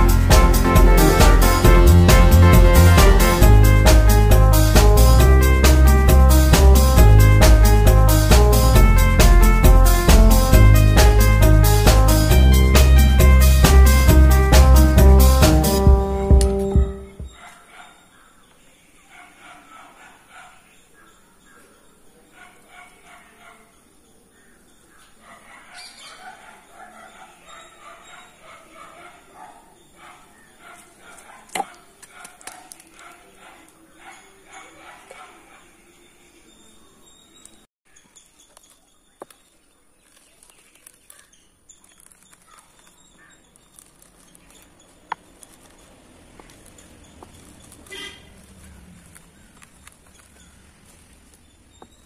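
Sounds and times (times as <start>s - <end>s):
faint dog barking: 17.2s - 23.9s, 24.9s - 36.1s
faint bird chirps: 34.0s - 45.8s
seeds crackling under roller: 38.4s - 52.0s.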